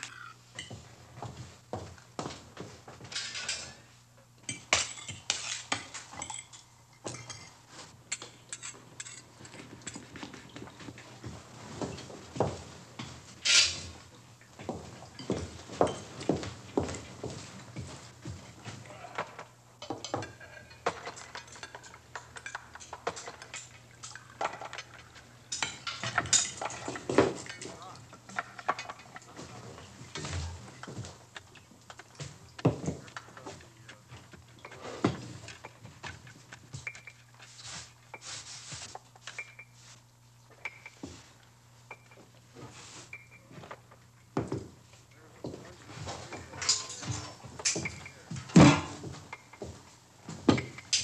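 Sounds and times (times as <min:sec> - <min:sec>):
cutlery clinking on plates: 0:00.0 - 0:00.9, 0:03.0 - 0:03.8, 0:04.4 - 0:11.0, 0:19.8 - 0:31.1, 0:31.9 - 0:38.4, 0:40.6 - 0:41.3, 0:41.9 - 0:42.3, 0:45.9 - 0:49.8.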